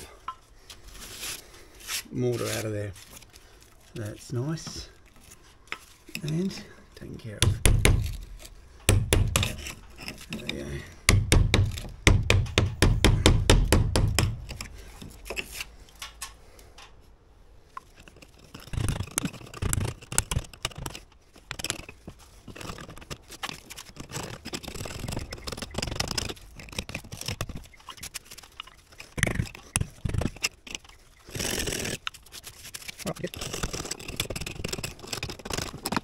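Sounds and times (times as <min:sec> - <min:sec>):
chisel scraping brick: 0:05.7 - 0:12.2, 0:12.8 - 0:15.8, 0:17.7 - 0:36.0
chisel knocks: 0:07.4 - 0:08.2, 0:08.8 - 0:09.8, 0:11.1 - 0:14.7
hammer tapping chisel: 0:07.4 - 0:08.2, 0:08.8 - 0:14.7.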